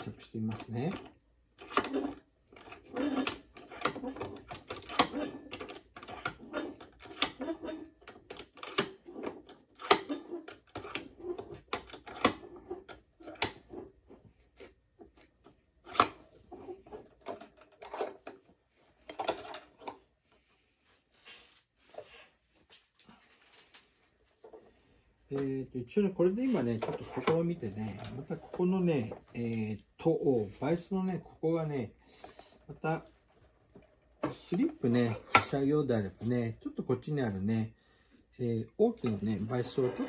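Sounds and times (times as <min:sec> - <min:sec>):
vise being tightened: 0:00.0 - 0:20.0, 0:26.5 - 0:29.3, 0:33.4 - 0:36.3.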